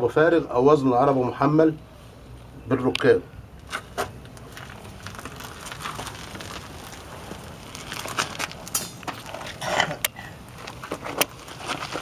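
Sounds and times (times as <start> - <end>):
footsteps on gritty concrete: 3.6 - 9.6, 10.4 - 12.0.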